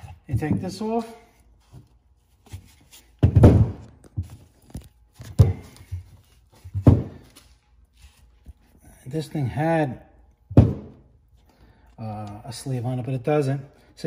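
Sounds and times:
shock absorber thunking on workbench: 3.2 - 4.3, 6.7 - 7.2, 10.5 - 11.0.

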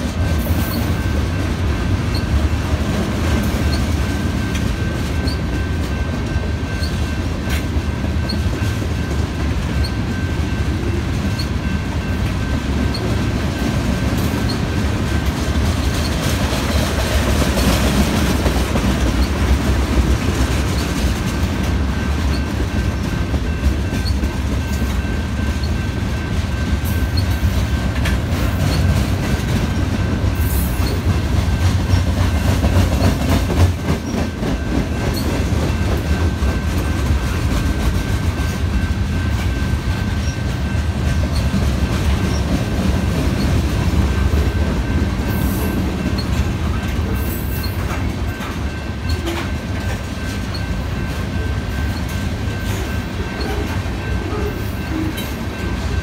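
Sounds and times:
freight train rumbling past: 0.0 - 56.0.

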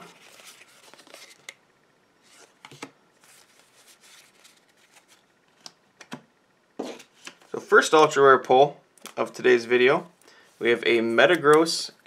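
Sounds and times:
trading cards rustling: 0.0 - 1.6, 2.3 - 5.7.

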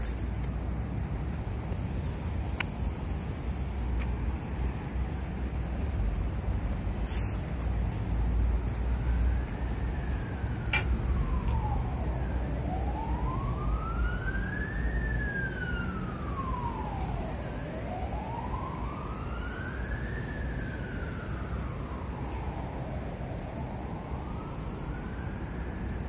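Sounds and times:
emergency siren wailing: 8.2 - 26.0.

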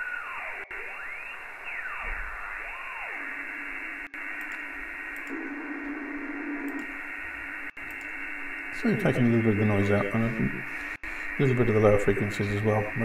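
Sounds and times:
gliding whistling tone: 0.0 - 3.3
filtered radio hiss: 0.0 - 13.0.

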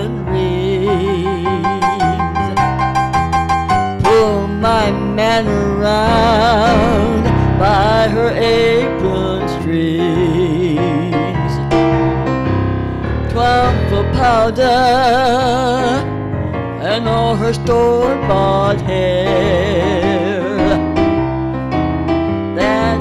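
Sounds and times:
electric keyboard: 0.0 - 23.0.

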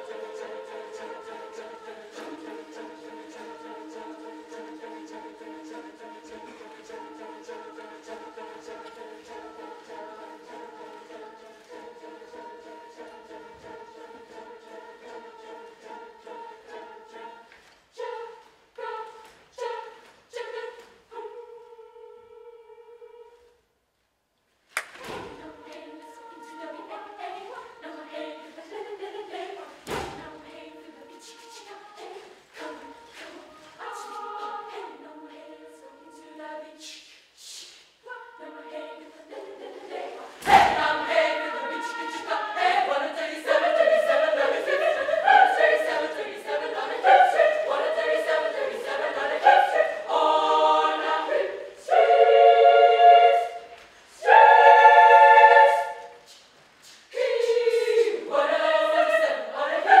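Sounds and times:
children's choir singing: 0.0 - 23.5, 24.9 - 60.0
thump: 24.9 - 25.4, 29.8 - 30.3.

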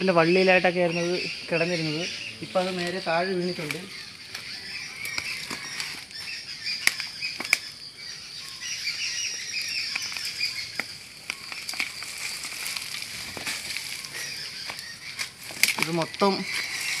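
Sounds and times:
high chirping: 0.0 - 17.0
twigs and leaves rustling: 0.0 - 17.0
twigs snapping: 2.5 - 7.8, 9.5 - 17.0.

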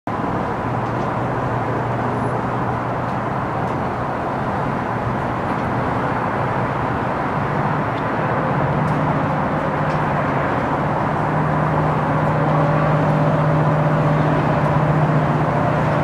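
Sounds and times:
diesel locomotive droning: 0.1 - 16.0.

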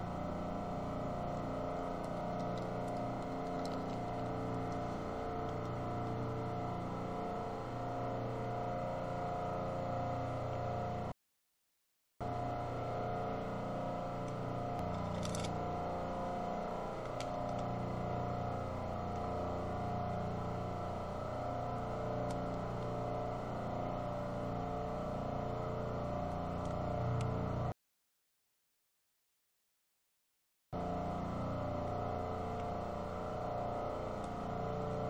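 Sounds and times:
mechanical hum with held tones: 0.0 - 11.2, 12.2 - 27.8, 30.8 - 35.0.

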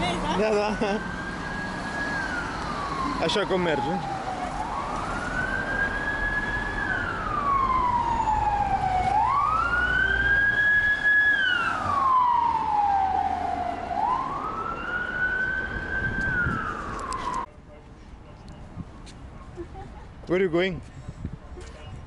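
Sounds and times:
street traffic hum: 0.0 - 22.0
emergency siren wailing: 0.2 - 17.5.

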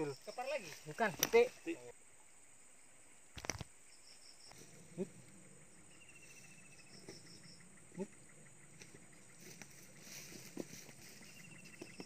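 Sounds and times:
insects chirping: 0.0 - 12.0
thin steady high tone: 5.0 - 7.7.

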